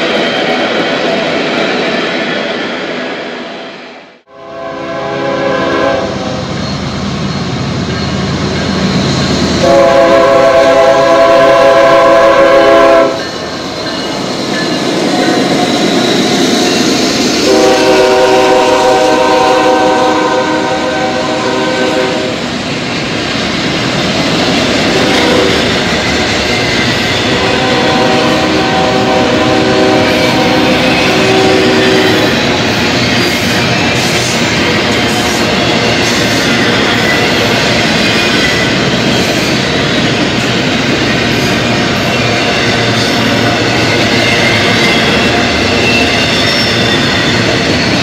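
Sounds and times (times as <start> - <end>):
locomotive air horn blasts: 4.3 - 6.4, 9.6 - 13.2, 17.4 - 22.4, 24.9 - 25.7, 27.3 - 32.3.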